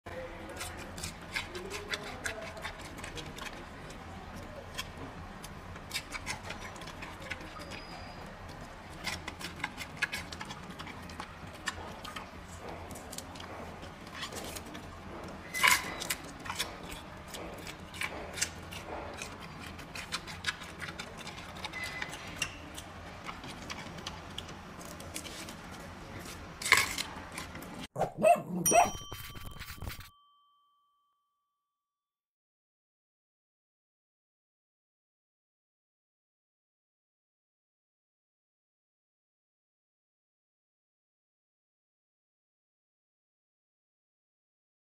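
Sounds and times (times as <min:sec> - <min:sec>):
panda chewing and crunching: 0:00.4 - 0:30.0
chiming sound effect: 0:28.5 - 0:31.2.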